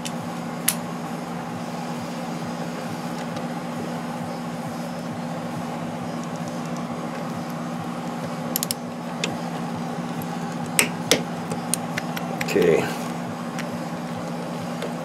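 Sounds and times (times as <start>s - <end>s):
steady background hum: 0.0s - 15.0s
torque wrench clicking: 8.5s - 9.4s.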